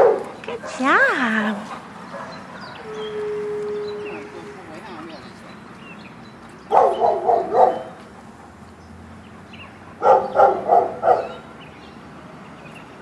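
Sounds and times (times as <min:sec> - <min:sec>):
dog barking high-pitched: 0:06.7 - 0:07.9, 0:10.0 - 0:11.4.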